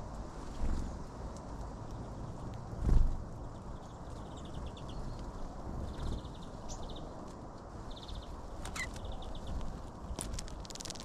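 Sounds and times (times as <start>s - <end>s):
songbirds ticking trills: 0.4s - 11.0s
bird pecking seeds: 7.9s - 11.0s.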